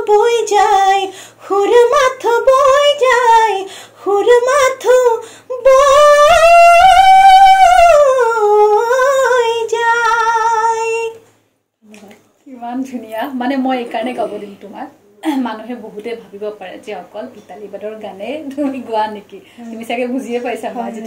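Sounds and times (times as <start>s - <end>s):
woman singing unaccompanied: 0.0s - 11.2s.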